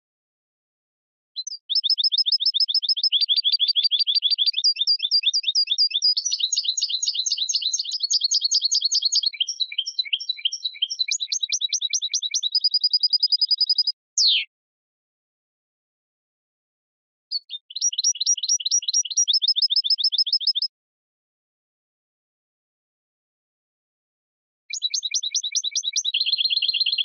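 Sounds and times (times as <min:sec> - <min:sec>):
finch singing twittering trills: 0:01.4 - 0:14.4, 0:17.4 - 0:20.7, 0:24.8 - 0:27.0.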